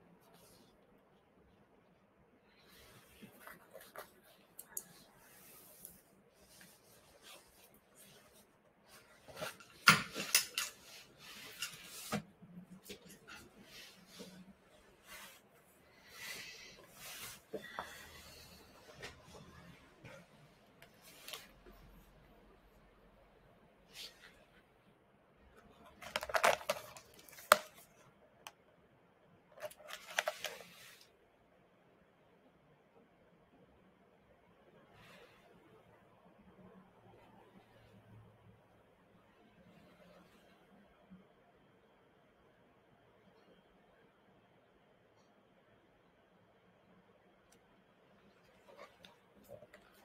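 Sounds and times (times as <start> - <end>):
objects rustling on a desk: 2.6 - 22.1, 25.8 - 28.0, 29.6 - 31.1, 48.3 - 50.0.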